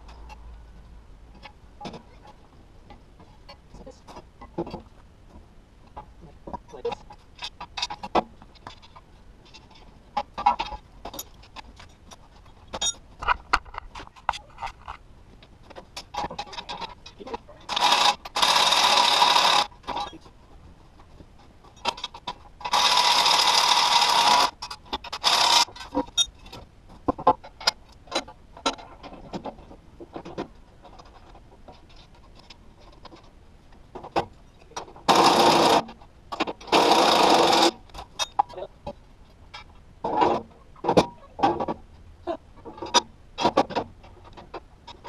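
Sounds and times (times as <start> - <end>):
metal parts clinking: 12.7 - 13.4, 24.2 - 26.4
cordless drill running: 17.7 - 19.7.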